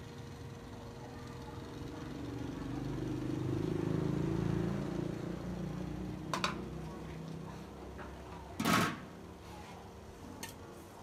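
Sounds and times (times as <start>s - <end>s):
passing vehicle engine hum: 2.8s - 6.3s.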